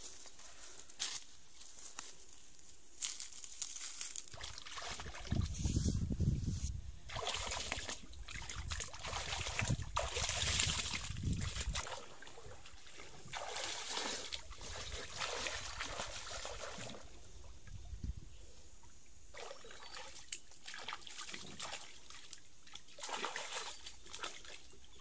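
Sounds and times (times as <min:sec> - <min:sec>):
water splashing and sloshing: 0:04.3 - 0:05.7, 0:07.1 - 0:18.0, 0:18.8 - 0:25.0.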